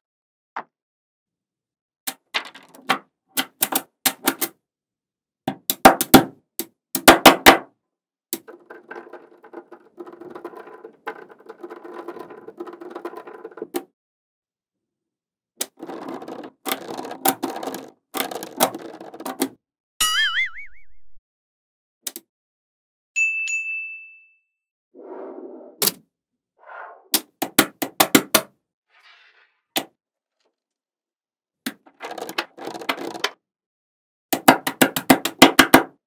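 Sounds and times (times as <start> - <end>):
balls rattling clatter: 2.1 - 3.0, 8.4 - 13.8, 15.6 - 19.6, 31.7 - 33.4.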